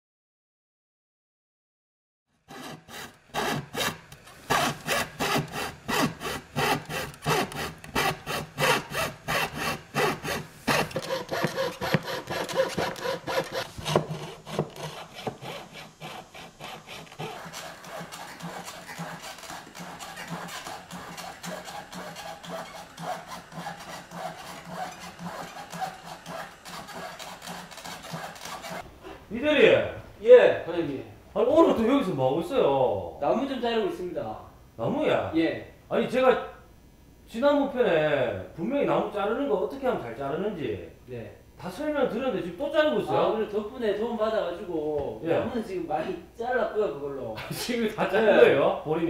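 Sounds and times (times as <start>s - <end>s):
coping saw cutting board: 2.5s - 28.8s.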